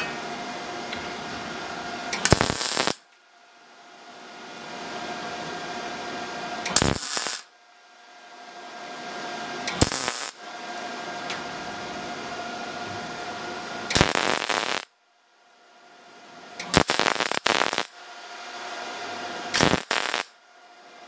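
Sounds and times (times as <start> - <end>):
welder humming: 0.0 - 14.9, 16.5 - 20.4
crackling welding arc: 2.1 - 3.1, 6.6 - 7.5, 9.6 - 10.4, 13.9 - 14.9, 16.6 - 18.0, 19.5 - 20.4.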